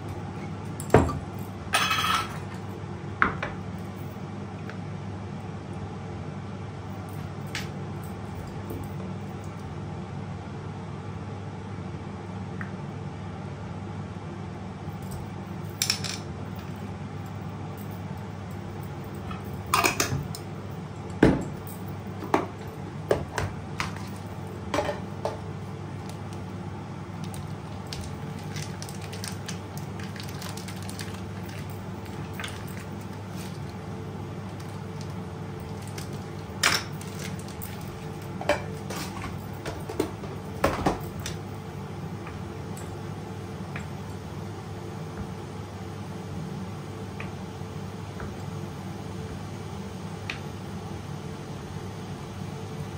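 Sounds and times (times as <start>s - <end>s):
steady low hum: 0.0s - 52.9s
plastic packaging rustling: 27.2s - 33.8s, 34.4s - 40.4s.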